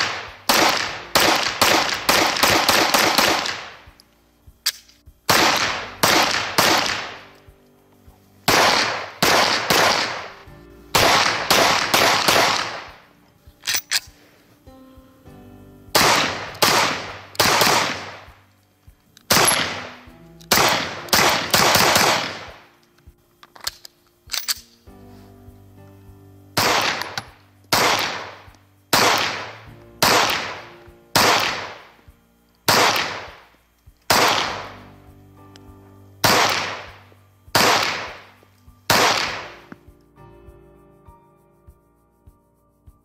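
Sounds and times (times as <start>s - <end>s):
pistol shots echoing: 0.0s - 3.9s, 4.7s - 7.2s, 8.5s - 13.0s, 16.0s - 18.4s, 19.3s - 22.7s, 26.6s - 32.0s, 32.7s - 33.5s, 34.1s - 34.7s, 36.2s - 38.3s, 38.9s - 39.7s.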